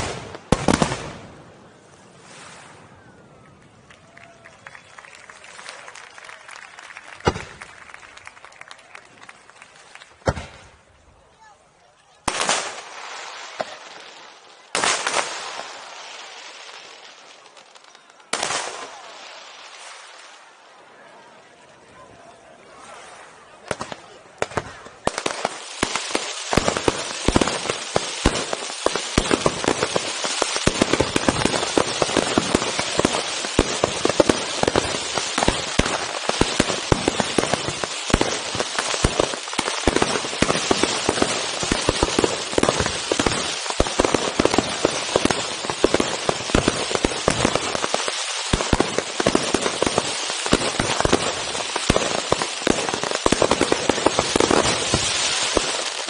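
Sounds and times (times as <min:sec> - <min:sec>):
fireworks crackling and popping: 0:00.0 - 0:02.9, 0:03.6 - 0:11.4, 0:12.2 - 0:20.6, 0:23.6 - 0:56.0
fireworks shells bursting: 0:25.1 - 0:56.0.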